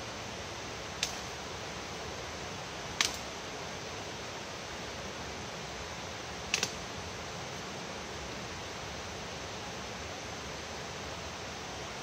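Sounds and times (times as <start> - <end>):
steady rushing hiss: 0.0 - 12.0
vegetation snapping: 1.0 - 1.2, 3.0 - 3.2, 6.5 - 6.8.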